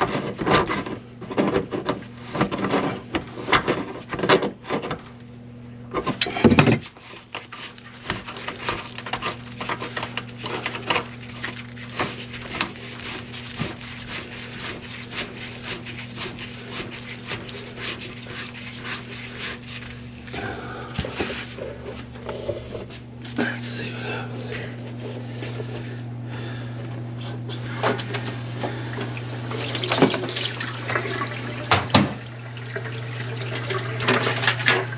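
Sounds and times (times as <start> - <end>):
motor hum: 0.0 - 34.9
drain snake cable scraping: 6.8 - 20.4.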